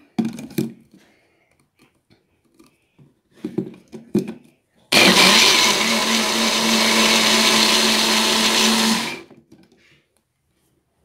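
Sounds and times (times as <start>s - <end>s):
blender motor running: 4.9s - 9.3s.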